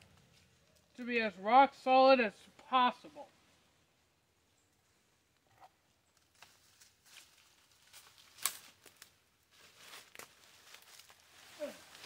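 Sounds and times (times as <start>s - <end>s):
twigs cracking: 6.1s - 12.0s
footsteps through dry leaves: 6.3s - 12.0s.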